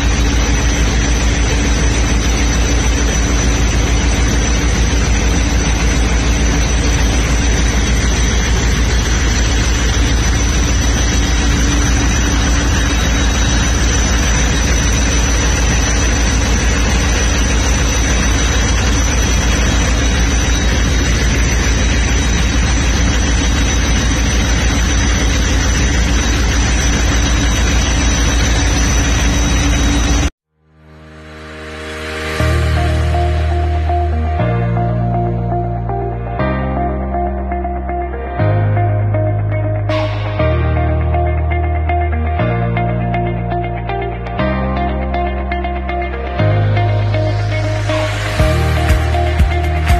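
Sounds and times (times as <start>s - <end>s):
diesel locomotive engine idling: 0.0s - 30.3s.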